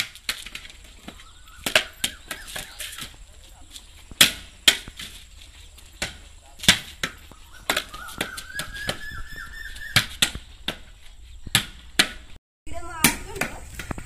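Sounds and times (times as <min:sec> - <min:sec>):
tennis ball hitting wall and floor: 0:00.0 - 0:03.1, 0:04.1 - 0:05.2, 0:05.9 - 0:09.0, 0:09.9 - 0:12.4
faint chirping trill: 0:01.0 - 0:03.2, 0:07.3 - 0:10.6.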